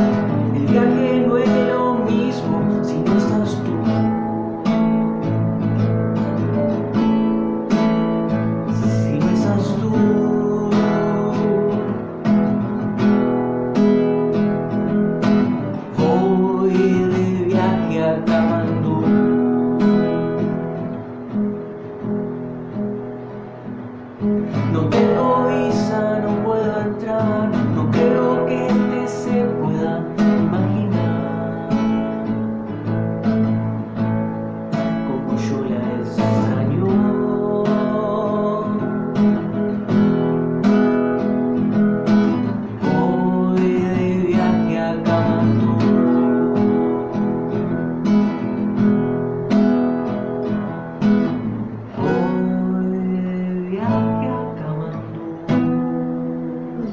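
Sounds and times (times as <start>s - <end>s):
man singing: 0.0s - 5.2s, 8.6s - 12.3s, 15.8s - 19.8s, 24.4s - 32.9s, 34.7s - 39.4s, 42.6s - 47.5s, 51.9s - 56.9s
classical guitar strummed chords: 0.0s - 56.9s.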